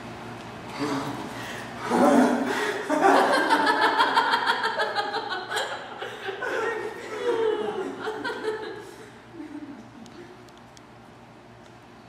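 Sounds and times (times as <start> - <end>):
group of people laughing: 1.9 - 10.3.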